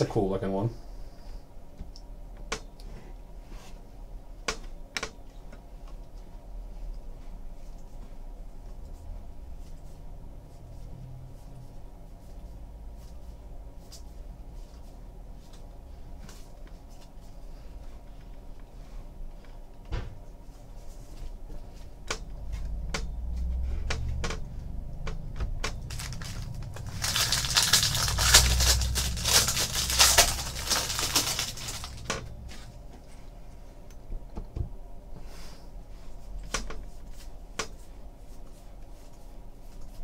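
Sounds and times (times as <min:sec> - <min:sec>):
foil wrapper crackling and tearing: 0:25.8 - 0:32.2.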